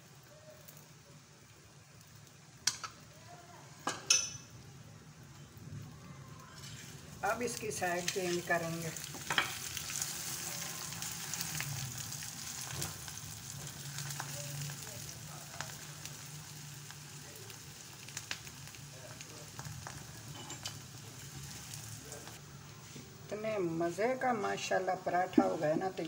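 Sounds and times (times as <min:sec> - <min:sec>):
flatbread sizzling in fat: 0:00.0 - 0:23.1.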